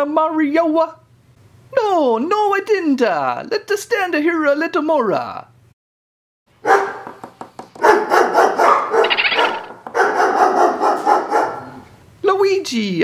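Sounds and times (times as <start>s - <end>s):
squirrel barking and chattering: 8.9s - 9.9s.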